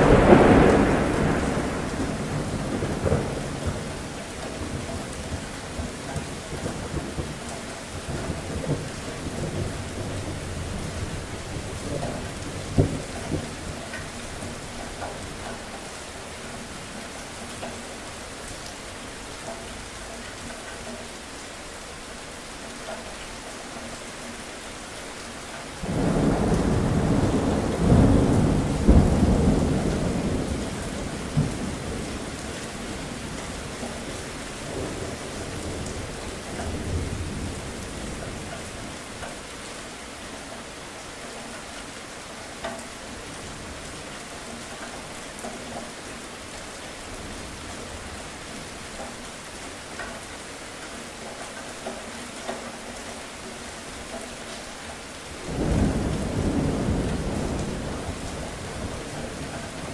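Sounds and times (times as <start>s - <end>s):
thunder rumbling: 0.0s - 15.9s, 25.8s - 39.0s, 55.3s - 59.9s
raindrops ticking: 0.0s - 59.9s
steady rain hiss: 0.0s - 59.9s.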